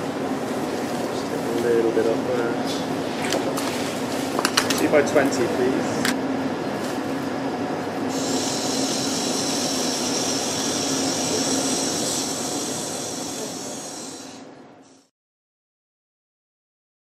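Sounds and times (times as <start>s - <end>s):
surgical burr humming: 7.4s - 15.1s.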